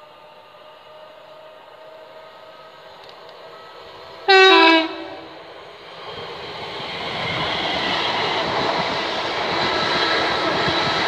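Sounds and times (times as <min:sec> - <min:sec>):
train rushing past: 0:00.0 - 0:11.0
two-tone train horn: 0:03.5 - 0:05.4.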